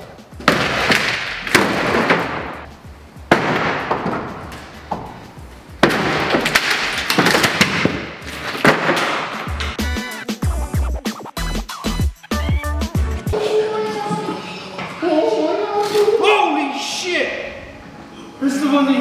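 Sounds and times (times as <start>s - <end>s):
ceiling panels crashing onto floor: 0.4s - 2.7s, 3.3s - 4.8s, 5.8s - 9.8s.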